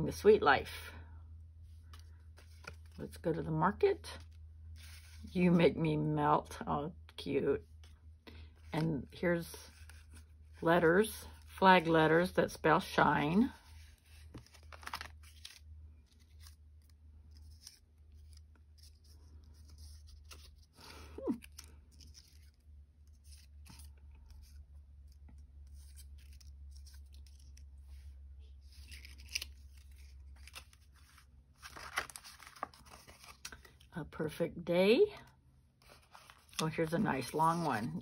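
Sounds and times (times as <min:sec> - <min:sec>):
low steady hum: 0:00.0 - 0:38.0
paper rustling: 0:13.6 - 0:33.8, 0:35.8 - 0:38.0.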